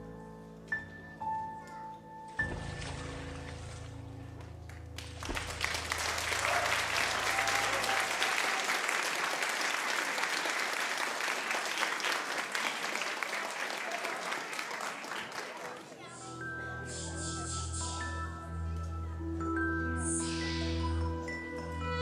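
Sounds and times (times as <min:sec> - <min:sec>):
audience applauding: 0:04.4 - 0:16.2.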